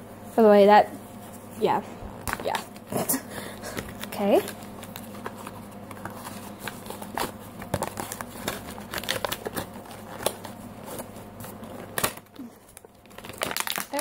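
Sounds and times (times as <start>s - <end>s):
plastic packaging clicks and crinkling: 3.7s - 14.0s.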